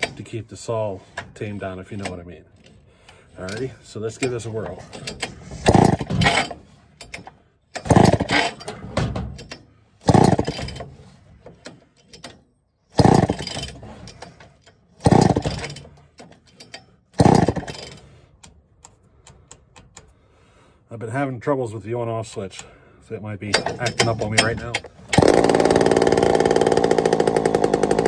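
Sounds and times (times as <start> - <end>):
chainsaw recoil starter pulls: 1.1 - 18.2, 23.5 - 28.0
engine cranking without starting: 2.0 - 18.5, 23.5 - 28.0.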